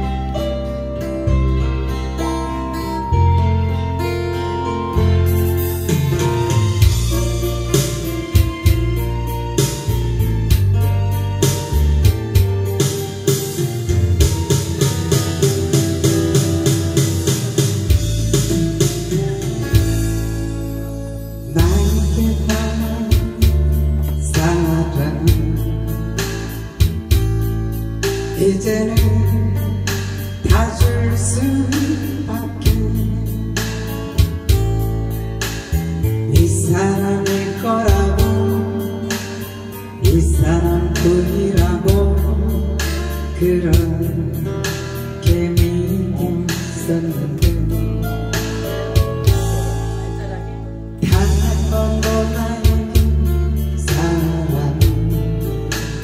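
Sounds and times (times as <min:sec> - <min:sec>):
acoustic guitar: 0:00.0 - 0:56.0
backing track with bass and beat: 0:00.0 - 0:56.0
woman singing into a microphone: 0:21.4 - 0:26.5, 0:28.3 - 0:34.2, 0:36.2 - 0:48.2, 0:49.6 - 0:56.0.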